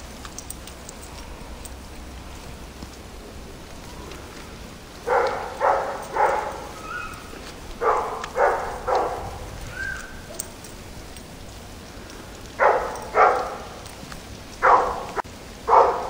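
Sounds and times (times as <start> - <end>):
steady hiss: 0.0 - 16.0
dog barking: 5.0 - 10.6, 12.6 - 13.8, 14.6 - 16.0.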